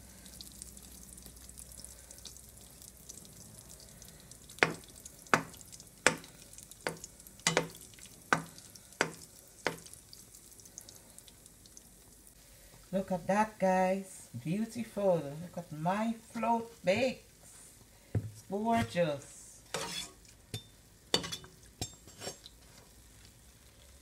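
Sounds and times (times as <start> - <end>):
dough sizzling in oil: 0.0 - 14.3, 15.2 - 24.0
spoon knocking against pan: 4.6 - 9.9.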